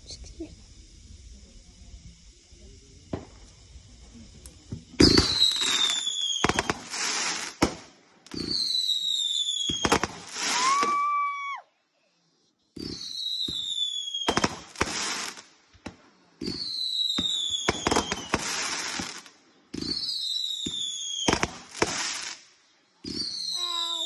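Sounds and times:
firework bangs and crackle: 0:00.0 - 0:11.4, 0:12.7 - 0:24.0
falling firework whistle: 0:02.0 - 0:11.6, 0:12.8 - 0:15.4, 0:16.4 - 0:22.4, 0:23.0 - 0:24.0
firework launch thump: 0:03.0 - 0:03.7.

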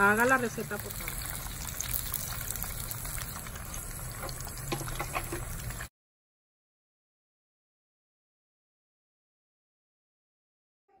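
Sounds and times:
food deep-frying in hot oil: 0:00.0 - 0:05.9.

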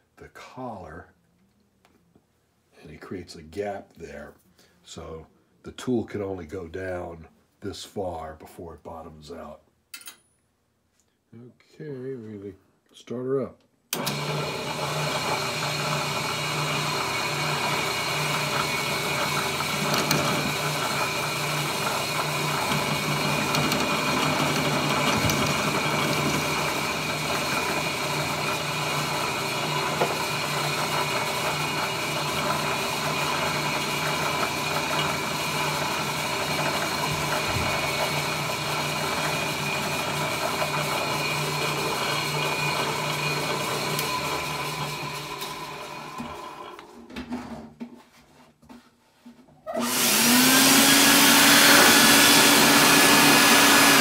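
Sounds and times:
drill press motor running: 0:14.0 - 0:46.8, 0:49.8 - 0:54.0
end mill cutting metal: 0:15.3 - 0:45.6, 0:49.8 - 0:54.0.

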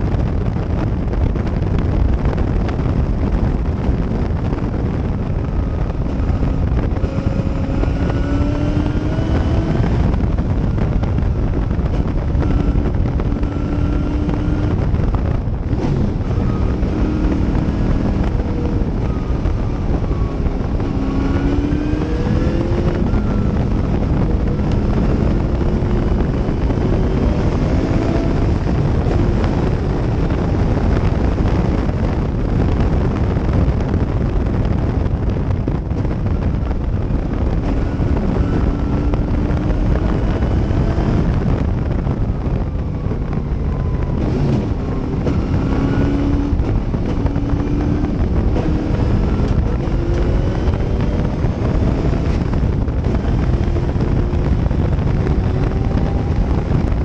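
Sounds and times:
wind buffeting microphone: 0:00.0 - 0:57.0
race car engine accelerating: 0:04.3 - 0:34.4, 0:35.0 - 0:57.0.

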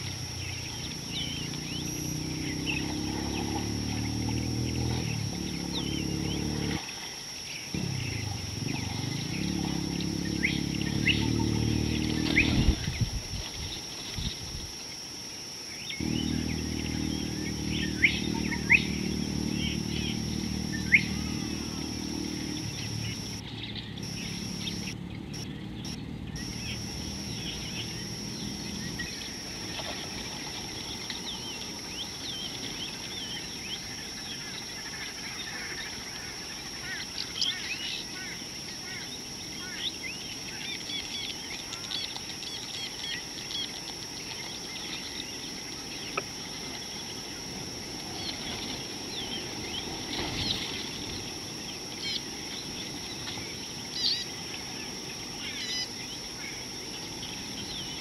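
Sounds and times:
high-pitched whine: 0:00.0 - 0:58.0
low droning hum: 0:00.0 - 0:58.0
bird chirps: 0:15.8 - 0:29.4.

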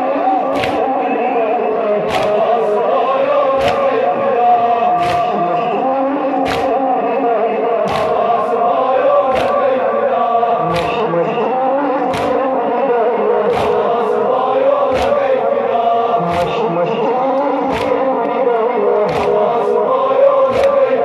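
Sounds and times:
men chanting in unison: 0:00.0 - 0:21.0
hands slapping chests: 0:00.5 - 0:00.9, 0:02.0 - 0:02.7, 0:03.5 - 0:04.0, 0:05.0 - 0:05.7, 0:06.4 - 0:06.9, 0:07.9 - 0:08.4, 0:09.3 - 0:09.8, 0:10.6 - 0:11.1, 0:12.0 - 0:12.6, 0:13.5 - 0:14.0, 0:14.6 - 0:15.4, 0:16.2 - 0:16.7, 0:17.4 - 0:18.1, 0:19.1 - 0:19.8, 0:20.4 - 0:21.0.

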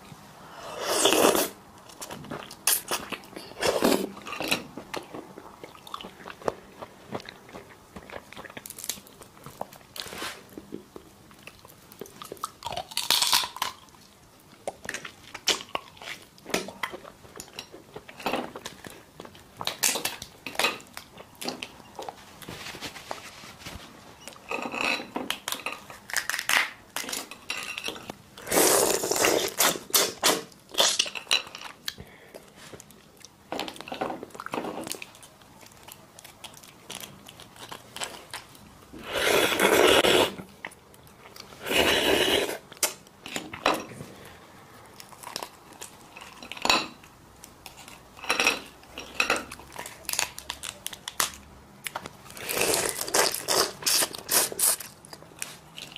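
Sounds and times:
prawn shells cracking: 0:12.6 - 0:13.9.

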